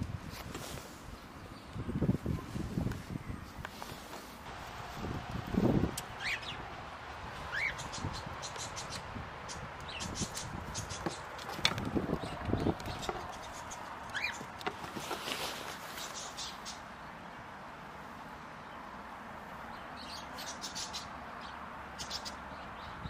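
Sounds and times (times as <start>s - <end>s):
bird chirps: 6.0s - 6.7s, 7.4s - 11.4s, 12.1s - 14.5s, 19.8s - 23.0s.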